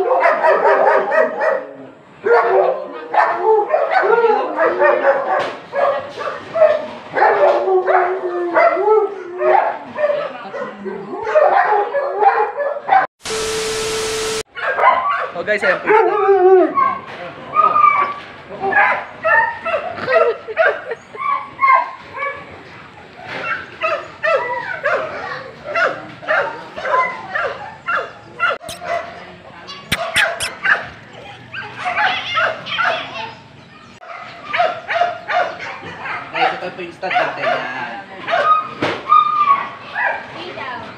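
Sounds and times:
static hiss: 13.2 - 14.4
steady tone: 13.2 - 14.4
sharp clicks: 29.9 - 30.5
dog whining and yipping: 29.9 - 30.7.

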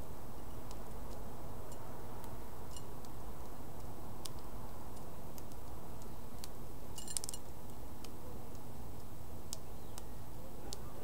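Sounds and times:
bird bill cracking seeds: 2.2 - 10.9.

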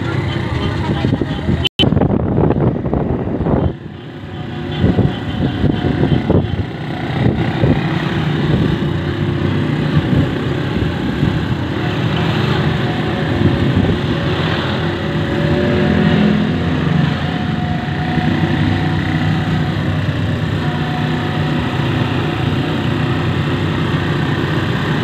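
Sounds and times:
wind noise on microphone: 0.0 - 25.0
small motorcycle engines running: 2.3 - 25.0.

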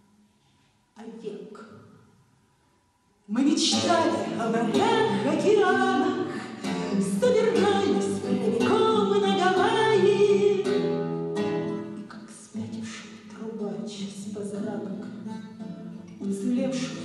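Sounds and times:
woman singing: 3.3 - 10.9, 12.0 - 17.0
acoustic guitar: 3.4 - 17.0.

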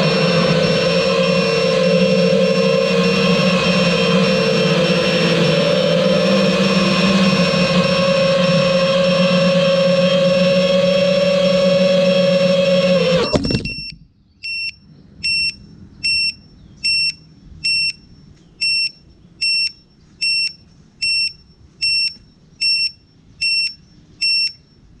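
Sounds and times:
drone motors winding down: 0.0 - 14.1
short high beeps: 13.2 - 24.7.

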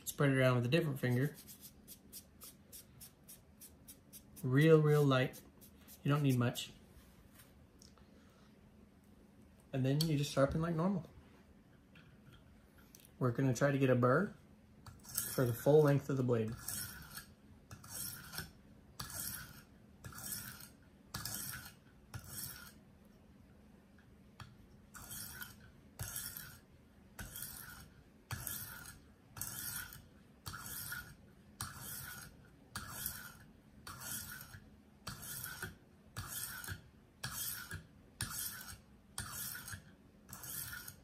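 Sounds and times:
sharpening stone rasping on knife: 0.9 - 6.3, 14.9 - 15.6, 16.4 - 22.8, 24.9 - 26.6, 27.2 - 41.0.

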